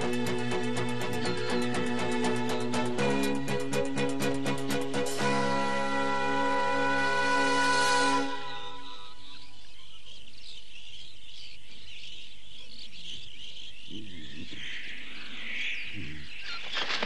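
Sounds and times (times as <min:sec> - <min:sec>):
birds chirping: 0:00.0 - 0:06.5, 0:07.1 - 0:17.0
low wavering calls: 0:05.1 - 0:10.6
insects chirping: 0:08.4 - 0:17.0.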